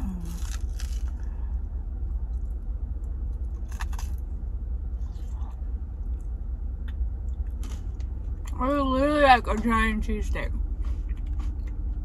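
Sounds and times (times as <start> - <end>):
crunchy chewing: 0.0 - 4.2
car cabin rumble: 0.0 - 12.0.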